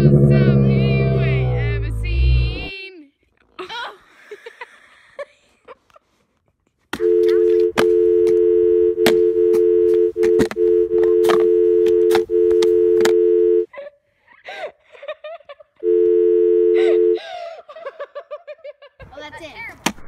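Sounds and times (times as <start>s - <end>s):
two-note telephone dial tone: 7.0s - 13.7s, 15.8s - 17.2s.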